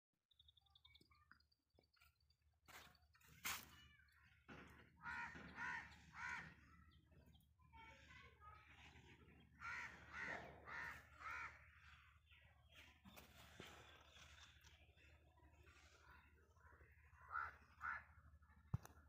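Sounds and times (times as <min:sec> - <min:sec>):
crow cawing: 0:04.7 - 0:06.9, 0:09.6 - 0:11.9, 0:17.2 - 0:18.2.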